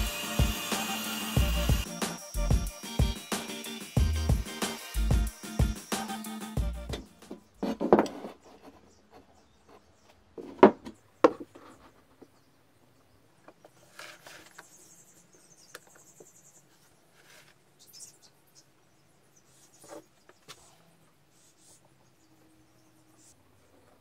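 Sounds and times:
background music: 0.0 - 7.4.

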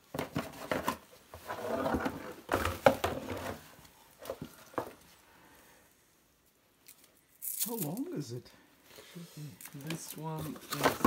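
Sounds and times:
plastic cable rubbing and rustling: 0.1 - 4.4.

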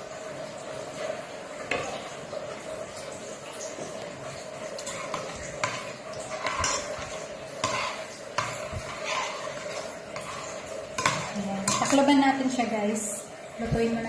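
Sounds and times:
spoon scraping metal pot: 4.8 - 12.3.

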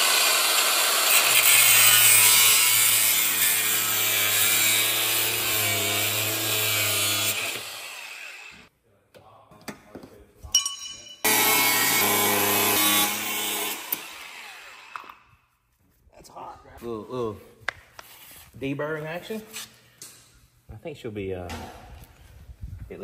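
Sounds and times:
power tool cutting metal: 0.0 - 8.7, 11.2 - 15.2.

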